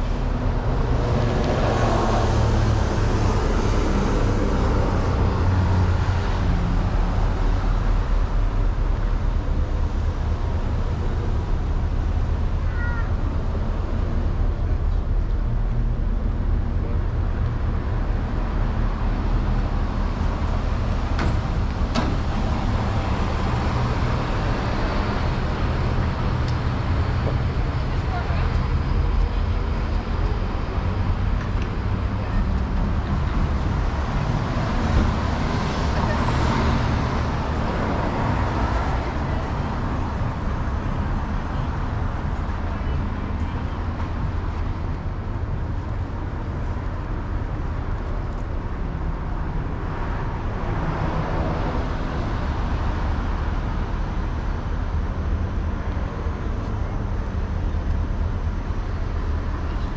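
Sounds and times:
rumble of passing traffic: 0:00.0 - 0:59.9.

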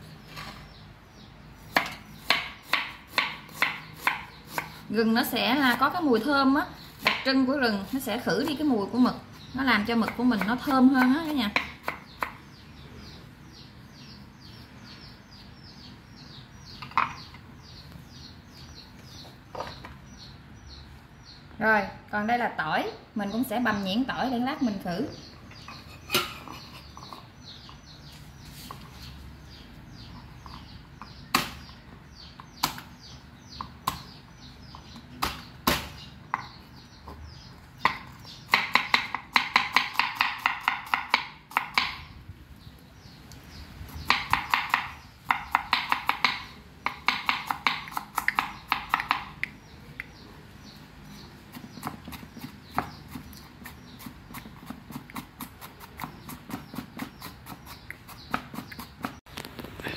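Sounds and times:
knife chopping on wooden board: 0:01.7 - 0:04.8, 0:07.0 - 0:07.3, 0:37.8 - 0:42.1, 0:44.0 - 0:49.4.

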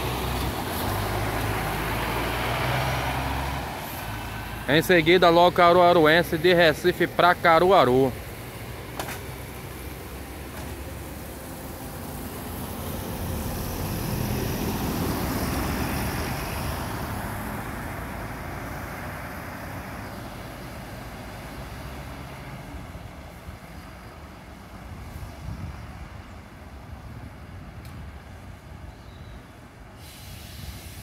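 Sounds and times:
bus driving past: 0:00.0 - 0:31.0.

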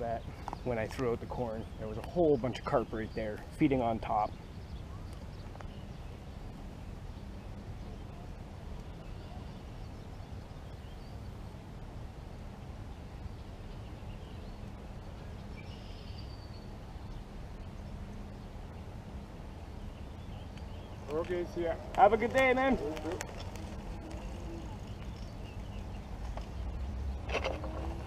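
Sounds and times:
low outdoor background rumble: 0:00.0 - 0:28.0
faint bird chirps: 0:04.1 - 0:11.4, 0:13.0 - 0:18.5.

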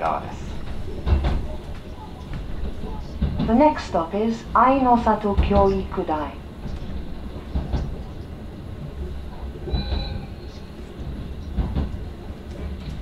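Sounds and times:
train wheel clicks: 0:00.0 - 0:08.4, 0:09.3 - 0:13.0
train rumbling inside car: 0:00.0 - 0:13.0
brief high squeal: 0:09.7 - 0:10.6.

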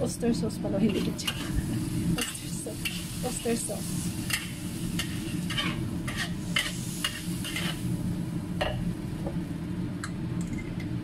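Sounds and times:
food sizzling in a wok: 0:00.7 - 0:09.8
metal spatula scraping a wok: 0:00.9 - 0:01.6, 0:02.2 - 0:07.9.

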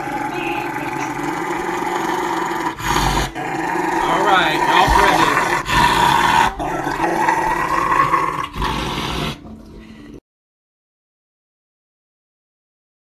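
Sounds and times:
dog growling: 0:00.0 - 0:09.6.

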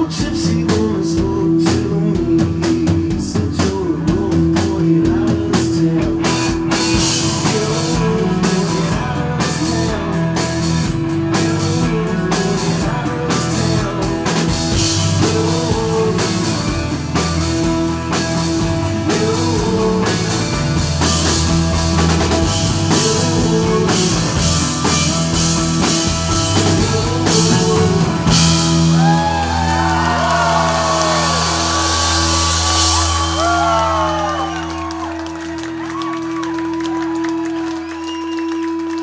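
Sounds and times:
live rock band playing: 0:00.0 - 0:39.0
audience whooping: 0:28.6 - 0:39.0.

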